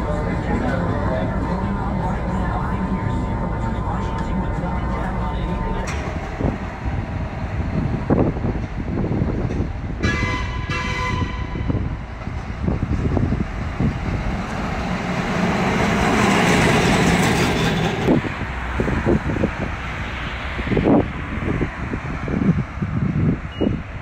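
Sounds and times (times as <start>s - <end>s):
street traffic: 0.0s - 24.0s
car horn toots: 10.0s - 11.8s.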